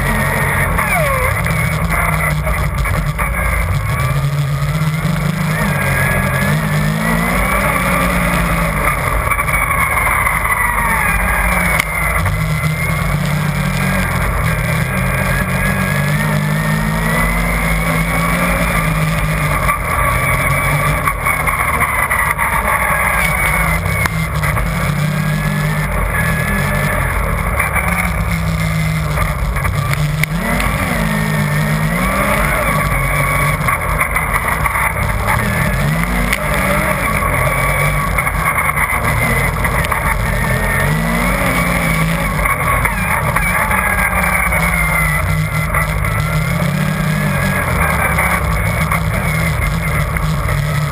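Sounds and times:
high engine whine: 0.0 - 50.9
snowmobile engine running: 0.0 - 50.9.

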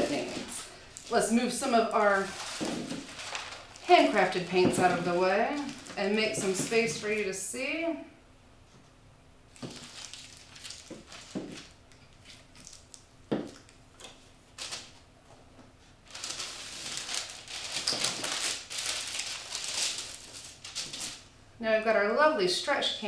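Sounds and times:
paper rustling and crinkling: 0.0 - 7.1, 9.6 - 15.0, 16.0 - 21.2.

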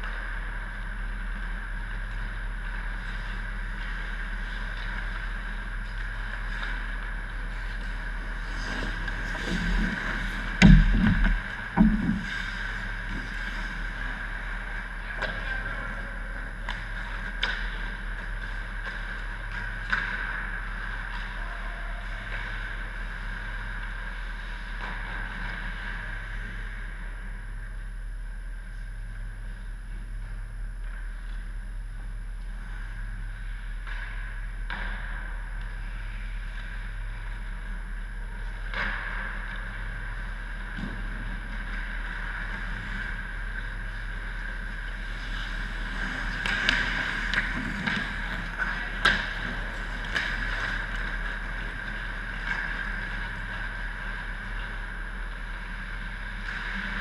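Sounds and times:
rink hum: 5.4 - 23.5
heavy thumps: 10.5 - 12.4
hockey sticks and puck clacking: 16.6 - 24.1, 33.8 - 35.8, 46.1 - 53.4.

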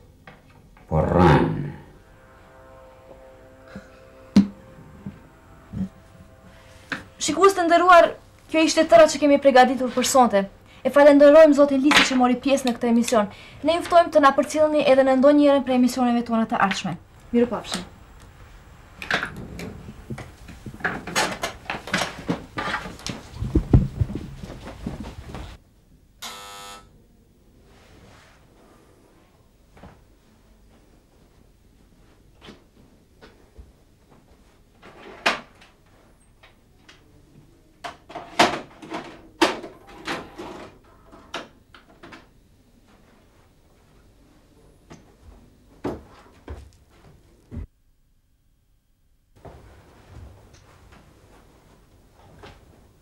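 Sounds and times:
irregular knocks and clatters: 19.0 - 25.6
heavy dull thumps: 19.1 - 25.6.

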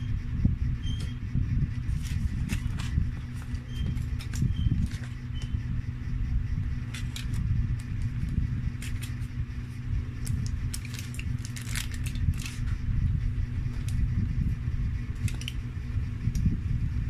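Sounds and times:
steady low hum: 0.0 - 17.0
aluminium foil crinkling: 1.9 - 5.5, 6.8 - 9.3, 10.2 - 12.8, 15.2 - 15.6.

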